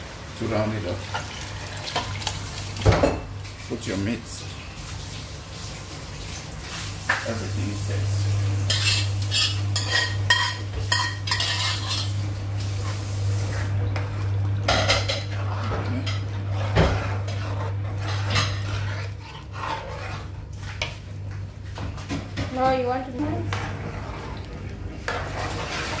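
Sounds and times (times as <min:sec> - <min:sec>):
metal spoon scraping steel pot: 0:08.7 - 0:12.1, 0:14.9 - 0:20.3.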